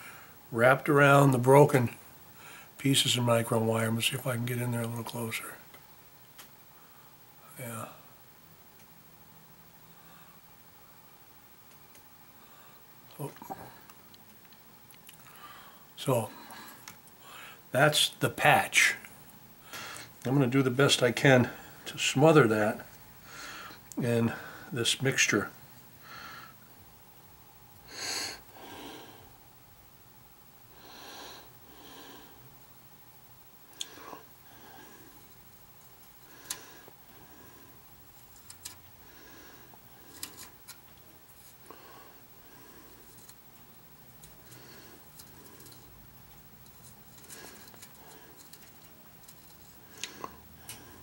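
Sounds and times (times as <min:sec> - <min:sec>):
stick scratching on wire: 0:40.1 - 0:41.6, 0:44.1 - 0:50.1.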